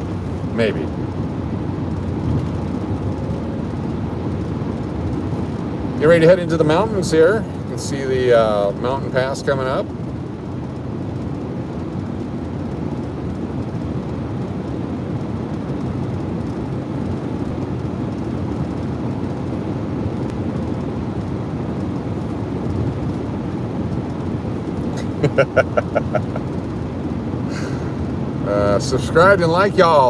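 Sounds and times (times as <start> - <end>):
car road noise rumble: 0.0 - 30.0.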